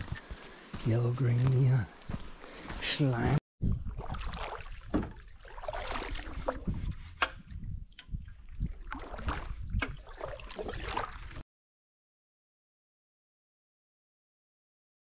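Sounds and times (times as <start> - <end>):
paddles splashing in water: 3.8 - 11.4
water dripping: 7.2 - 11.2.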